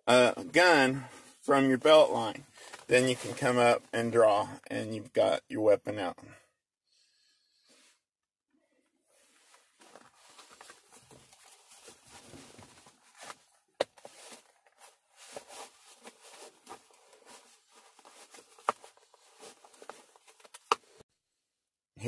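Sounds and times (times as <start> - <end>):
clothing and seat belt rustling: 2.5 - 3.6, 9.1 - 21.0.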